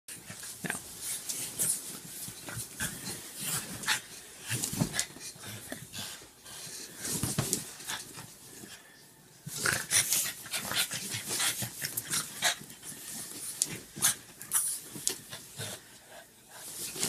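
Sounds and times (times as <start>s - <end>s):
bedding rustling: 0.1s - 8.8s, 9.5s - 17.0s
dog panting and snorting: 9.6s - 17.0s.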